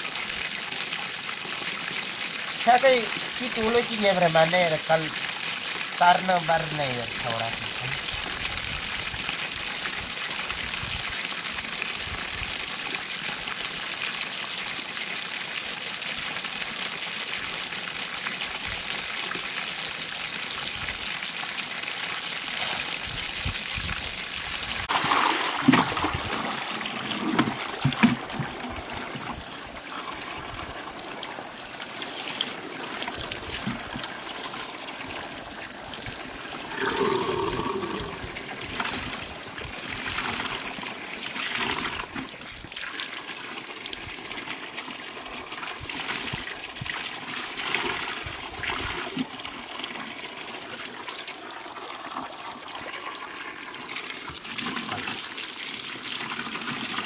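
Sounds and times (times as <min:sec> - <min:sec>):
water pouring onto concrete: 0:00.0 - 0:57.0
wet clothes splashing: 0:24.8 - 0:28.6.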